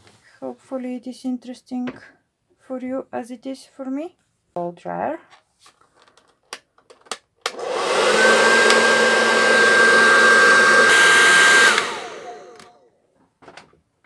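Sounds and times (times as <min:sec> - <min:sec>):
hair dryer blowing: 0:07.5 - 0:12.8.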